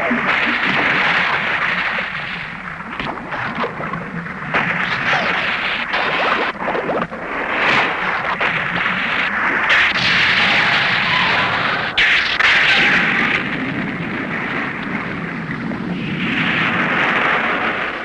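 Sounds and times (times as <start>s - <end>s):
explosion-like crashing and rumbling: 0.0s - 18.0s.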